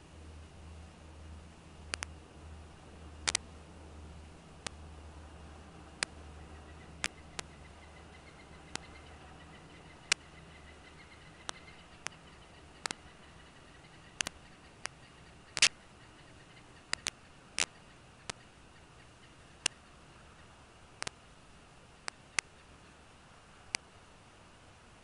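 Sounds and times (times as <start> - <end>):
faint steady hiss: 0.0 - 25.0
sharp clicks: 1.9 - 2.2, 3.2 - 3.5, 4.6 - 4.8, 6.0 - 6.2, 6.9 - 7.6, 8.7 - 9.0, 9.8 - 10.4, 11.2 - 13.2, 14.1 - 15.8, 16.8 - 18.5, 19.6 - 19.8, 21.0 - 21.2, 22.0 - 22.6.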